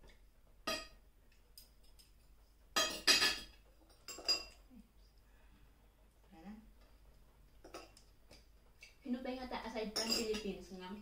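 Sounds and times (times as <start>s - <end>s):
cutlery clinking on plates: 0.7s - 4.7s, 7.6s - 9.0s, 9.9s - 10.5s.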